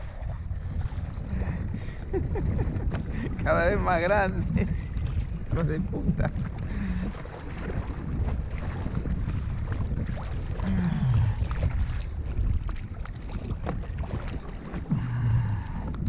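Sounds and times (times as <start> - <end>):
water slapping a kayak: 0.0 - 16.0
wind buffeting microphone: 0.0 - 16.0.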